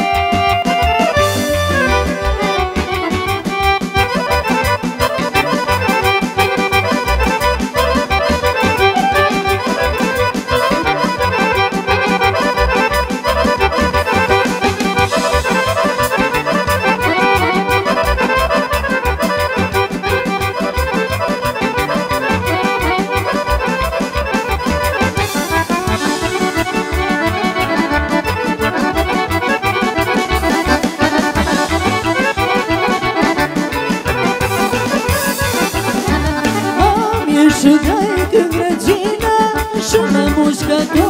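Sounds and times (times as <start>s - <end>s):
accordion playing folk dance tune: 0.0s - 41.0s.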